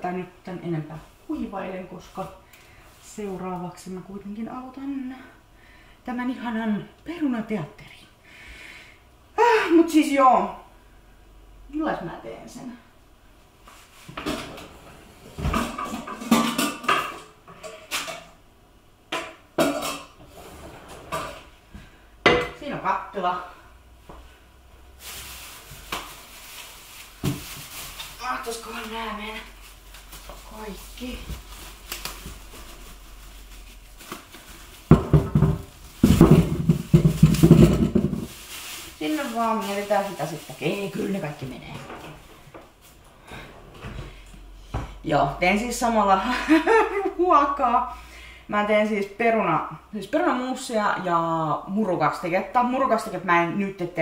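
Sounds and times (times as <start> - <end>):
pots and pans clanking: 15.4 - 18.4, 19.1 - 20.2, 34.9 - 38.4
potatoes tumbling into a pot: 33.8 - 42.2.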